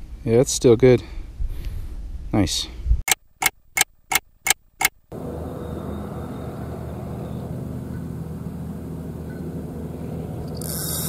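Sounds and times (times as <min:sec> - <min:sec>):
low engine hum: 0:05.1 - 0:11.0.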